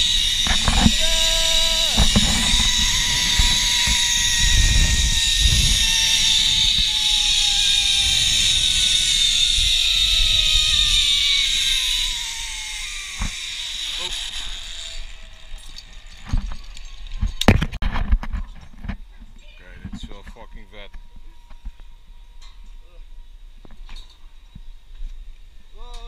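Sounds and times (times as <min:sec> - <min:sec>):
wind buffeting microphone: 0:00.0 - 0:11.2
zipline pulleys whining on cable: 0:00.0 - 0:17.7
person yelling: 0:00.8 - 0:02.2.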